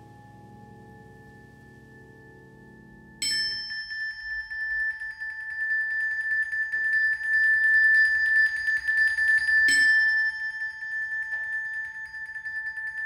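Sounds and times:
faint low held chord: 0.0 - 4.7.

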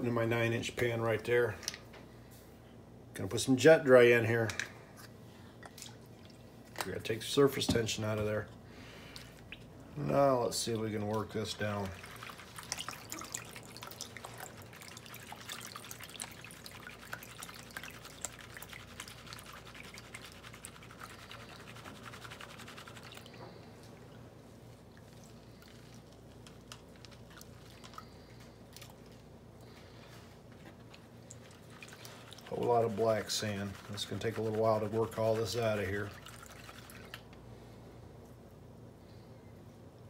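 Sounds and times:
water sloshing and splashing: 5.6 - 7.0, 10.6 - 37.3.

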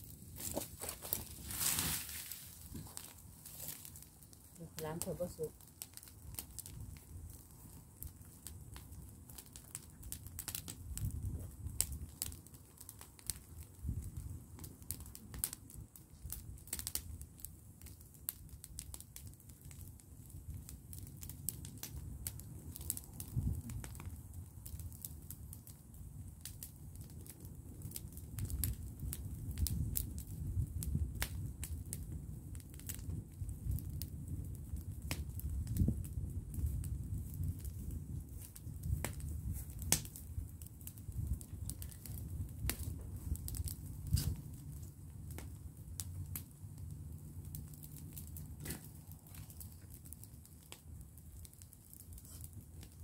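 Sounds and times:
bonfire crackling and popping: 0.0 - 53.0.

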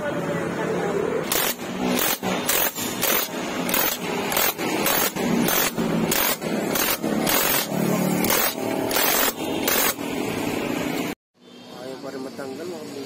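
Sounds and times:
impact wrench hammering: 1.3 - 10.2.

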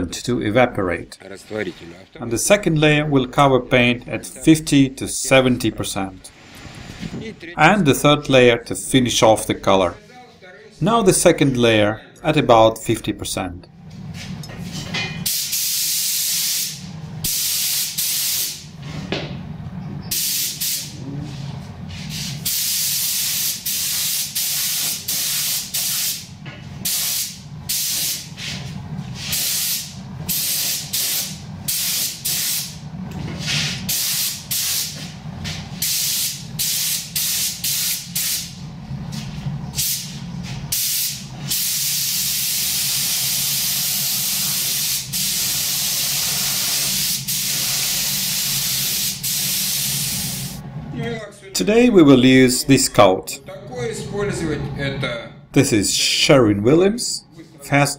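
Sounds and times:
steady low hum: 0.0 - 57.9
spray gun hissing paint: 15.2 - 18.7, 20.1 - 21.0, 21.9 - 32.8, 33.4 - 38.6, 39.7 - 50.6.

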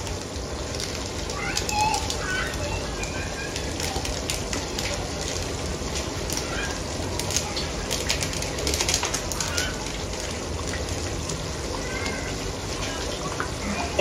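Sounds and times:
stew hissing and crackling: 0.0 - 14.0.

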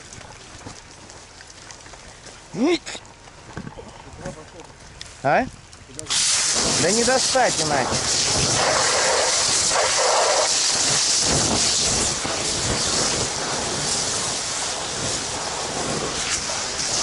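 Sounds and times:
water jet hissing: 6.0 - 17.0.

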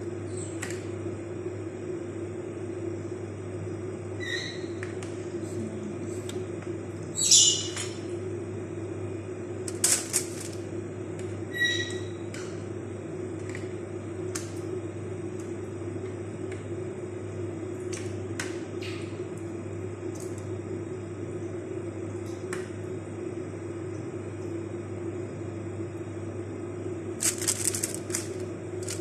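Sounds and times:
steady low hum: 0.0 - 29.0
aluminium foil crinkling: 27.2 - 29.0.

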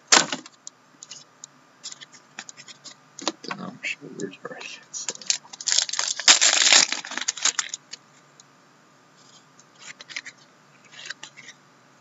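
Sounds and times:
cards rustling: 5.0 - 8.0, 9.2 - 11.6
wrapper crinkling and tearing: 5.1 - 7.8.

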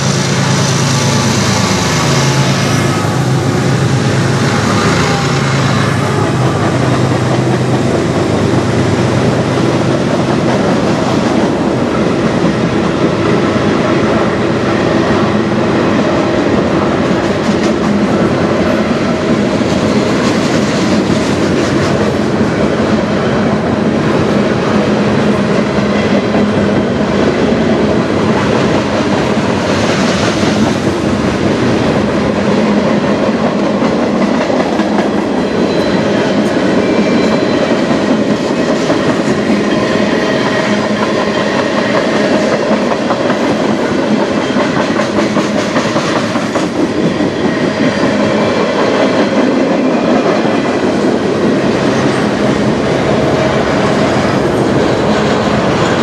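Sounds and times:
freight train wheels rumbling: 0.0 - 56.0
high wheel squeal: 35.2 - 38.0.

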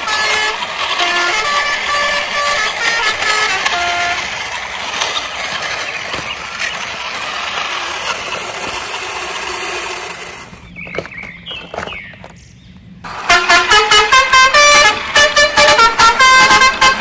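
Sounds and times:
truck engine: 0.0 - 17.0.

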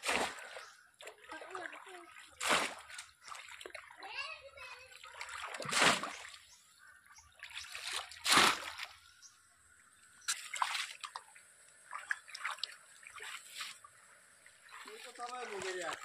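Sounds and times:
loud water splash: 0.0 - 0.6, 2.4 - 3.1, 5.2 - 6.4, 7.8 - 9.0
person wading through water: 0.0 - 16.0
water sloshing and dripping: 0.0 - 16.0.

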